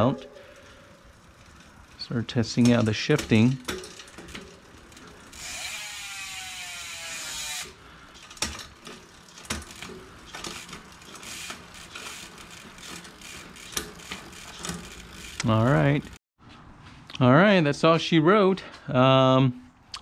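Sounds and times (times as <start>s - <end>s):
bicycle chain noise: 0.0s - 16.2s
bicycle drivetrain ratcheting buzz: 0.4s - 16.2s.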